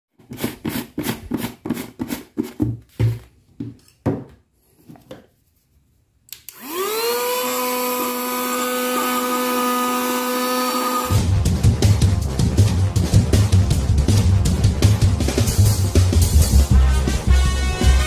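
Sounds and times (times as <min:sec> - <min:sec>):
handheld vacuum cleaner whine: 0:06.5 - 0:11.2.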